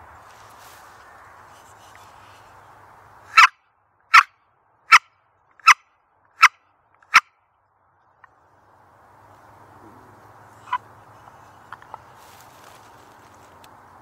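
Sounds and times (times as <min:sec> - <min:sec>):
turkey call yelps: 0:03.3 - 0:04.3, 0:10.6 - 0:10.9.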